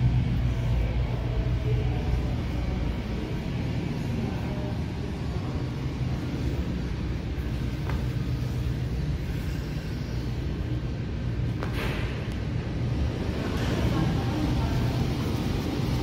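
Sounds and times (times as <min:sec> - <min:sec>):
indoor concourse rumble: 0:00.0 - 0:16.0.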